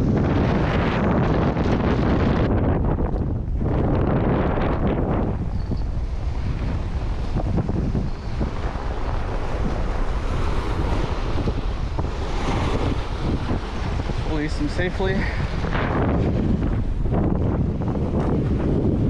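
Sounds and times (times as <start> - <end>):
wind buffeting microphone: 0.0 - 19.0
surf splash: 6.0 - 19.0.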